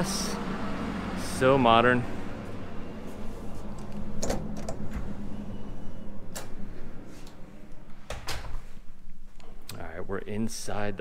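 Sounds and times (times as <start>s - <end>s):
low steady hum: 0.0s - 11.0s
door handle and latch clicks: 4.2s - 5.0s.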